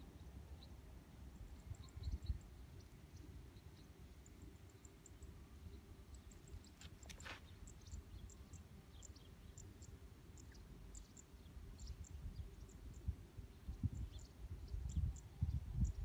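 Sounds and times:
wind rumble on microphone: 0:01.6 - 0:02.5, 0:11.7 - 0:16.0.

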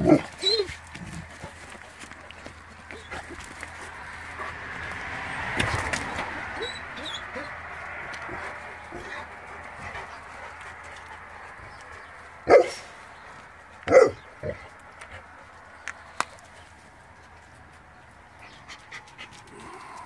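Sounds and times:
dog barking: 0:12.5 - 0:12.9, 0:13.8 - 0:14.3.

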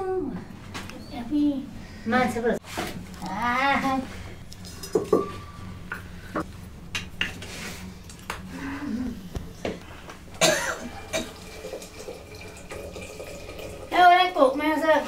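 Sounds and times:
metal pots knocking and clinking: 0:04.6 - 0:05.4
person coughing: 0:10.4 - 0:11.3.

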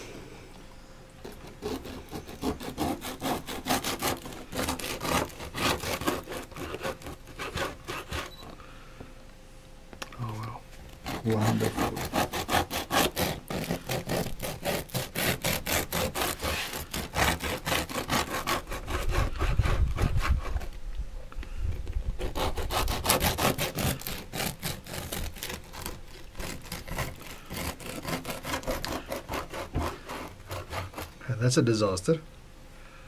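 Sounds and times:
knife sawing through crusty bread: 0:01.2 - 0:08.4, 0:10.9 - 0:20.8, 0:22.2 - 0:31.4.

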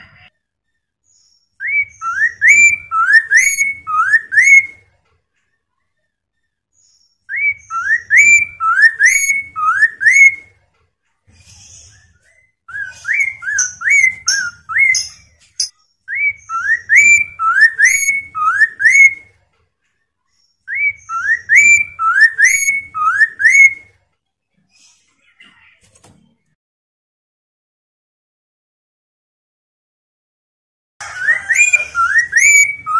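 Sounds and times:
laughingthrush whistled song: 0:01.3 - 0:04.8, 0:07.2 - 0:10.5, 0:12.2 - 0:19.3, 0:20.6 - 0:23.9, 0:31.0 - 0:32.9.

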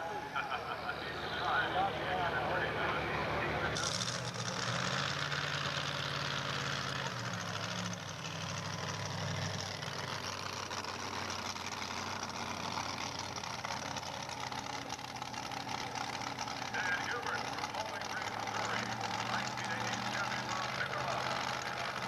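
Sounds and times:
truck engine idling: 0:00.0 - 0:22.0.

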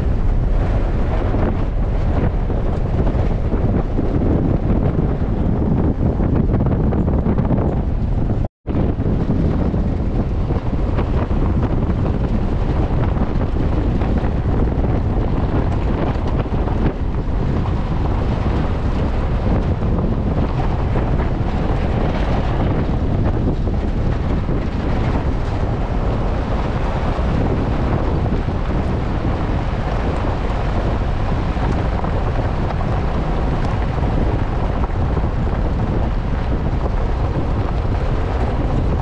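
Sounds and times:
vehicle driving on gravel: 0:00.0 - 0:39.0
wind buffeting microphone: 0:00.0 - 0:39.0.

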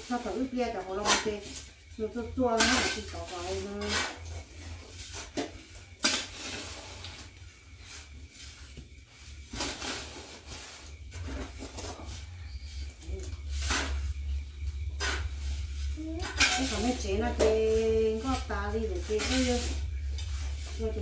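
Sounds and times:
low hum: 0:00.1 - 0:21.0
shovel scraping through powder: 0:06.0 - 0:07.1, 0:07.8 - 0:12.2, 0:13.4 - 0:21.0.

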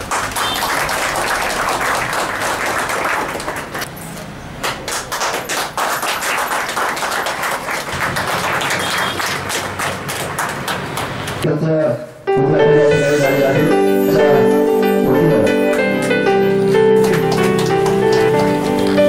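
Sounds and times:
crowd clapping: 0:00.0 - 0:03.9, 0:04.6 - 0:11.4, 0:15.4 - 0:19.0.

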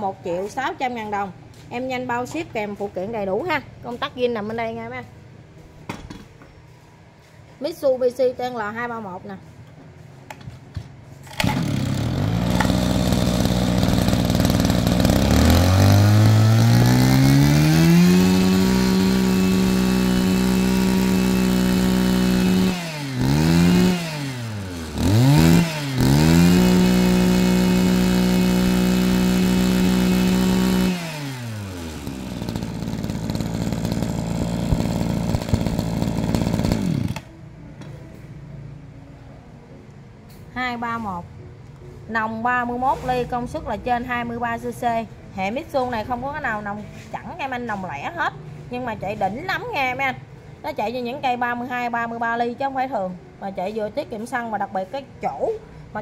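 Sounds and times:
brush-cutter engine revving: 0:11.2 - 0:37.3.

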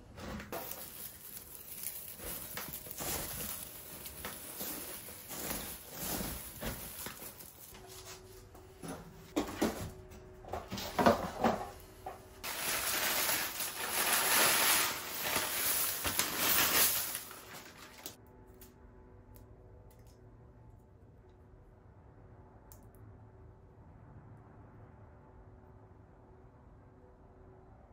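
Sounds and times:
paper bag crinkling: 0:00.4 - 0:08.3, 0:12.4 - 0:18.2
dry seeds pouring into plastic tray: 0:00.5 - 0:07.7, 0:12.4 - 0:18.1.

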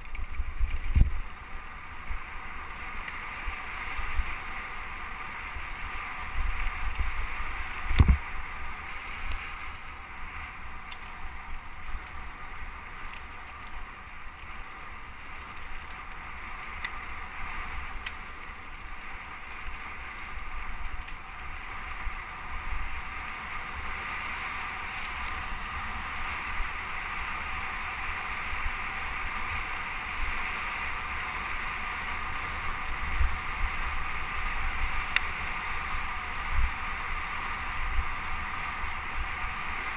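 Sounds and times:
wind on microphone: 0:00.0 - 0:01.4, 0:05.6 - 0:09.7
bike rattling over ground: 0:00.0 - 0:39.9.

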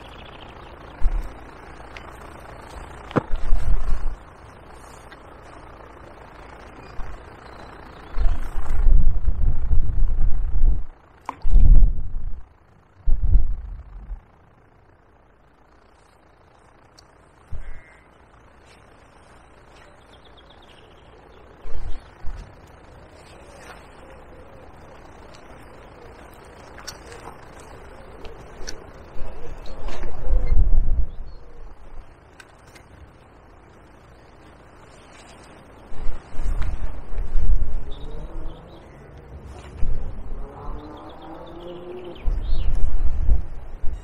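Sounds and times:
wind buffeting microphone: 0:00.0 - 0:04.8, 0:05.7 - 0:14.4, 0:23.8 - 0:33.5, 0:35.6 - 0:38.8, 0:39.4 - 0:44.0
steady breeze: 0:00.0 - 0:44.0.

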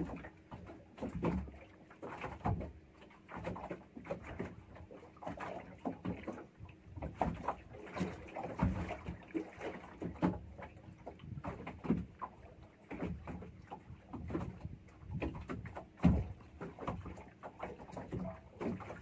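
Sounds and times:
water slapping against hull: 0:00.0 - 0:19.0
boat knocking: 0:05.8 - 0:19.0.

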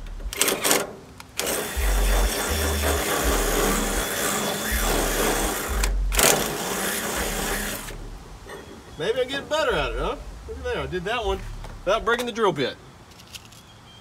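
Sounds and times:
hand drill boring through metal: 0:00.3 - 0:08.0.

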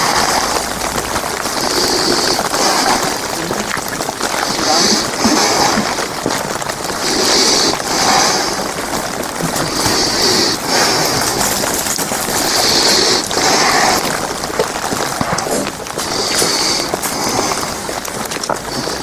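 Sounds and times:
rain pattering on umbrella: 0:00.0 - 0:19.0.

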